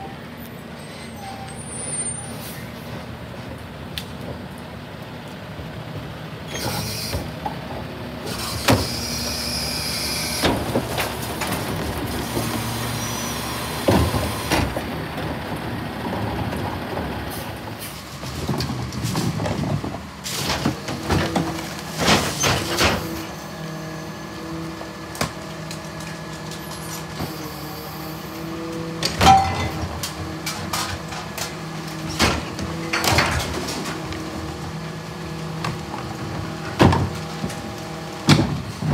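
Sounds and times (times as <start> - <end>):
diesel engines running: 0.0 - 38.9
hydraulic packers: 6.5 - 38.9
trash carts banging: 10.3 - 23.6, 28.4 - 38.9.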